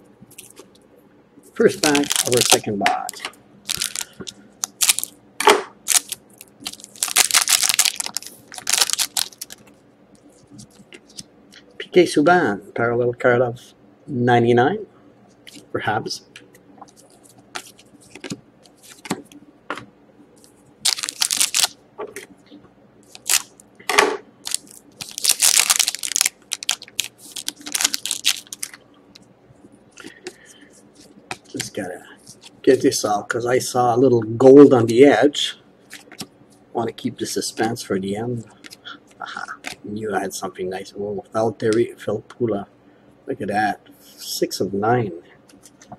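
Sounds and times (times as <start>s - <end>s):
wrapper crinkling: 1.7s - 5.2s, 5.8s - 11.2s, 16.9s - 19.2s, 20.8s - 21.8s, 23.1s - 23.7s, 24.4s - 28.8s, 35.9s - 36.3s.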